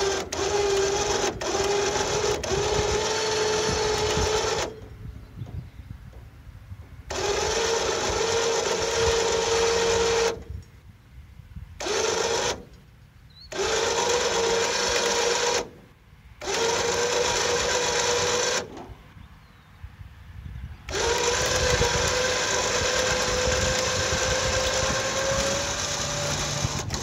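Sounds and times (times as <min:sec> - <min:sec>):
electric winch motor whining: 0:00.0 - 0:05.0, 0:07.1 - 0:10.5, 0:11.8 - 0:12.8, 0:13.5 - 0:19.0, 0:20.8 - 0:27.0.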